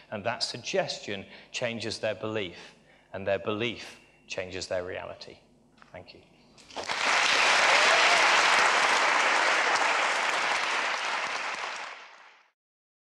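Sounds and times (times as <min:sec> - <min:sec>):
audience clapping: 0:06.6 - 0:12.6.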